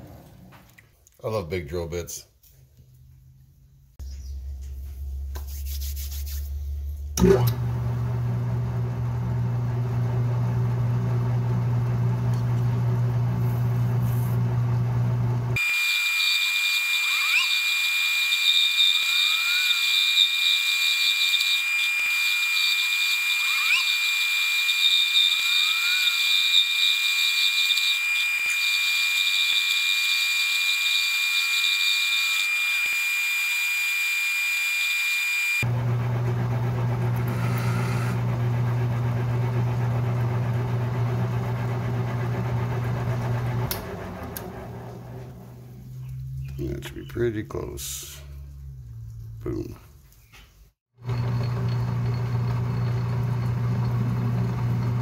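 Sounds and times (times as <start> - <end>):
high-pitched cutting whine: 15.6 - 35.6
lathe motor hum: 34.2 - 45.7, 51.0 - 55.0.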